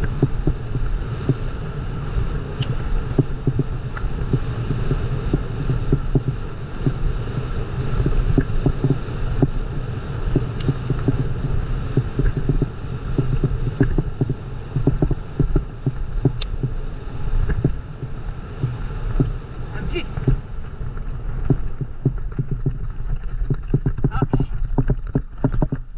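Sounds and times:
wind buffeting microphone: 0:00.0 - 0:25.9
sharp clicks: 0:10.4 - 0:11.3, 0:12.2 - 0:16.7
knocks and rattles: 0:21.4 - 0:25.9.

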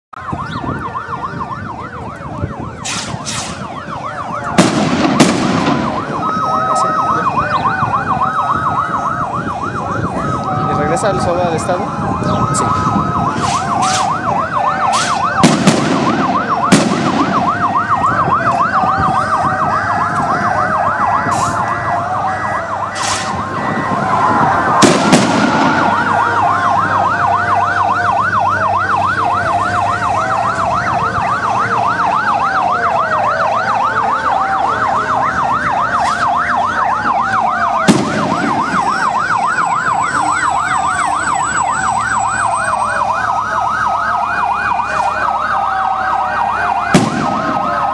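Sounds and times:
sirens yelping and wailing: 0:00.1 - 0:47.9
sharp loud bangs: 0:04.5 - 0:06.2, 0:14.9 - 0:17.8, 0:24.7 - 0:26.2, 0:37.8 - 0:38.9, 0:46.9 - 0:47.7.

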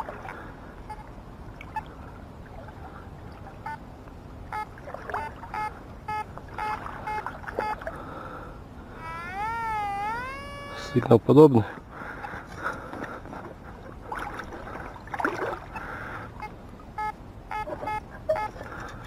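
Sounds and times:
water sloshing: 0:00.0 - 0:08.2, 0:11.9 - 0:19.0
metal detector beeps: 0:04.6 - 0:07.8, 0:16.4 - 0:18.6.

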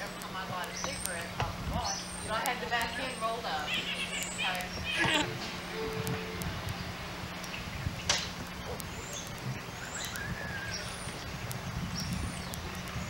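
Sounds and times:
outdoor background noise: 0:00.0 - 0:13.0
high bird chirps: 0:08.6 - 0:12.8.

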